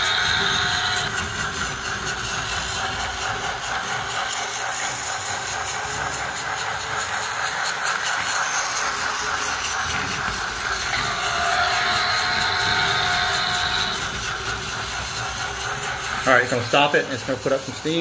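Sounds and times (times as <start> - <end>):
toy locomotive whirring and hissing: 0.0 - 18.0.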